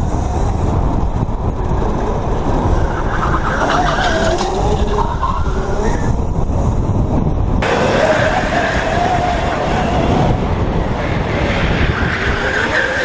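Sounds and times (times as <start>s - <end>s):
wind and road noise: 0.0s - 13.0s
tyres squealing: 2.6s - 6.1s, 11.3s - 13.0s.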